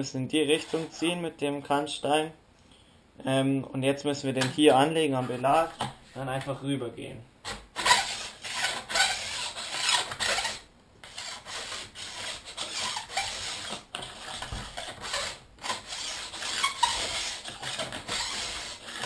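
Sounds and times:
edge tuner rasping on ski: 0:00.4 - 0:01.1, 0:07.8 - 0:19.0.

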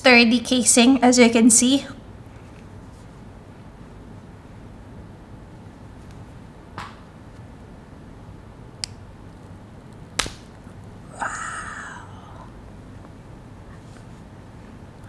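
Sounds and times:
chocolate bar snapping: 0:09.9 - 0:10.7.

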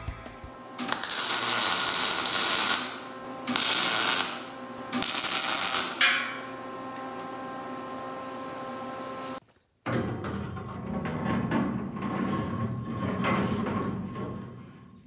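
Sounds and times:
welder arcing hiss: 0:00.8 - 0:06.0.

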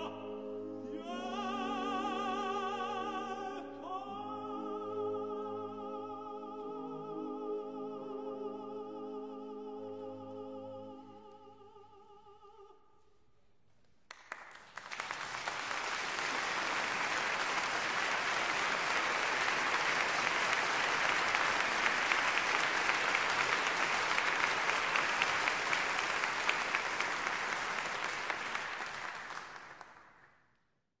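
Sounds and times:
audience applauding: 0:14.1 - 0:30.4.

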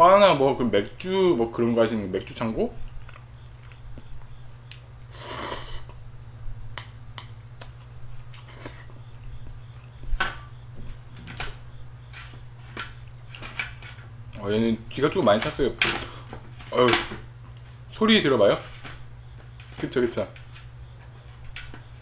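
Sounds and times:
low steady hum: 0:00.0 - 0:22.0
slurping noodles: 0:05.1 - 0:06.0.

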